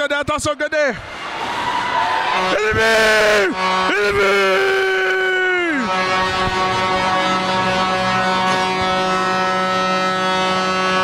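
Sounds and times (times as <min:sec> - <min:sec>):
arena goal horn: 0:02.3 - 0:11.0.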